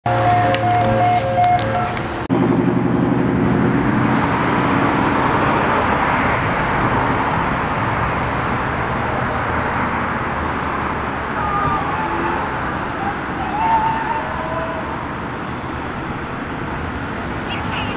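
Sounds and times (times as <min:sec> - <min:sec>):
low engine drone: 0:00.1 - 0:07.1
cars passing close by: 0:00.1 - 0:17.9.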